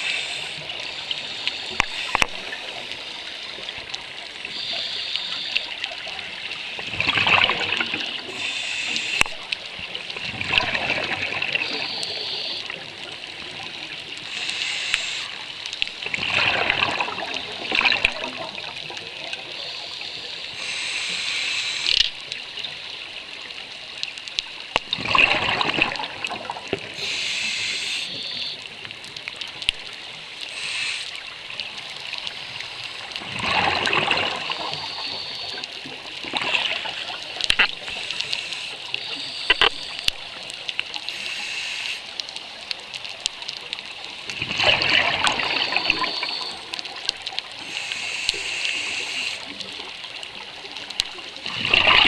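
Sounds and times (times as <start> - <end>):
regulator inhalation hiss: 0.0 - 3.6, 4.4 - 5.8, 8.2 - 9.4, 11.6 - 12.8, 14.2 - 15.6, 19.5 - 22.1, 26.9 - 28.8, 30.4 - 31.4, 37.8 - 40.0, 41.0 - 42.2, 47.5 - 49.6
exhaled bubbles gurgling: 5.5 - 8.4, 9.2 - 14.2, 16.0 - 19.5, 24.7 - 27.1, 31.2 - 40.4, 44.2 - 47.6, 48.9 - 52.0.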